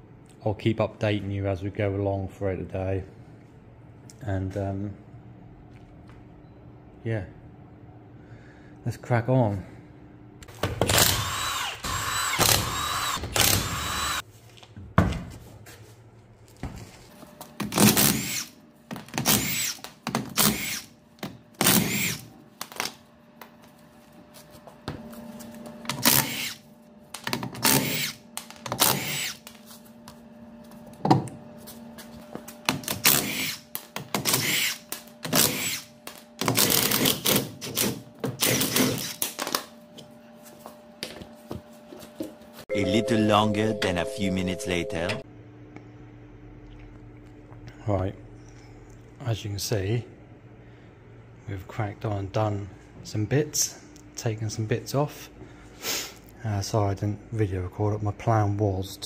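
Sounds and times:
power tool running: 0:10.8 - 0:14.2
faint steady hum: 0:42.7 - 0:59.0.

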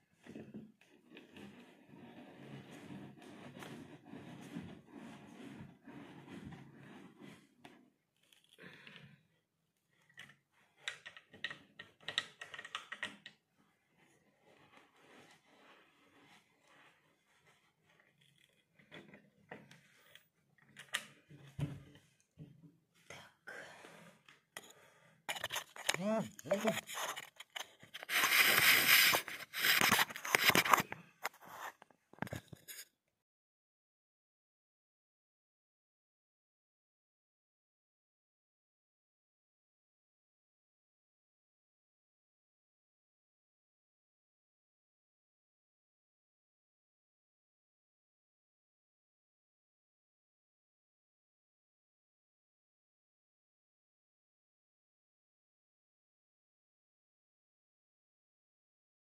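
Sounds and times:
phone rubbing on microphone: 0:01.3 - 0:07.6, 0:25.3 - 0:32.8.

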